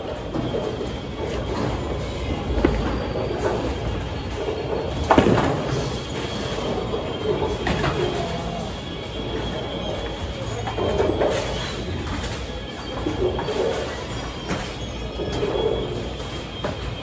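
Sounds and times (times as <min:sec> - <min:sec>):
bowling ball rolling on wooden lane: 0:00.3 - 0:09.7.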